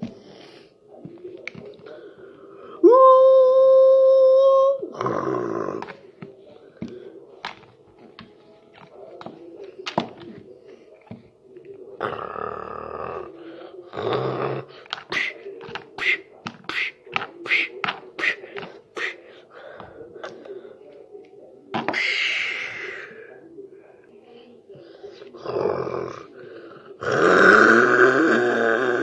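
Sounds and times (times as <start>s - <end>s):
vocal monster sounds: 4.9s - 6.0s, 12.0s - 15.4s, 25.4s - 29.0s
percussive mouth noises: 14.0s - 19.2s.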